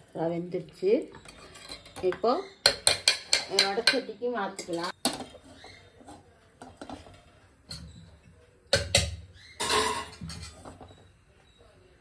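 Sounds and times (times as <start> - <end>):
metal pan clanking on grate: 8.9 - 10.6.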